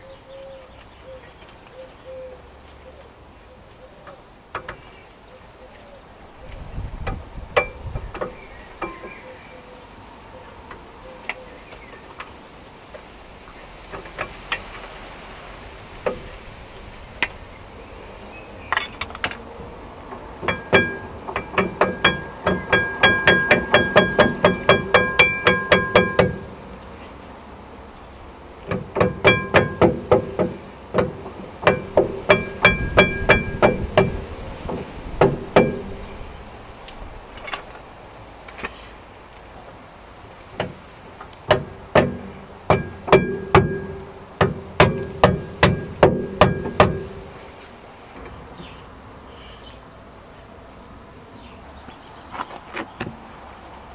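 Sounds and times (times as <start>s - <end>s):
hammer striking metal: 20.4s - 26.5s, 28.7s - 36.0s, 41.5s - 47.2s.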